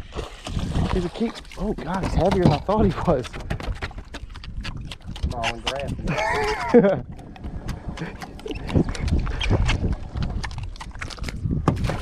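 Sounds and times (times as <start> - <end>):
knocks and thumps against boat: 0.6 - 4.4, 11.6 - 12.0.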